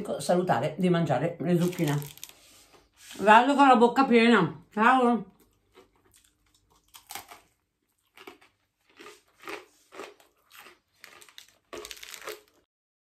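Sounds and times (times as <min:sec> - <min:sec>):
crunchy food being chewed: 0:05.4 - 0:12.7.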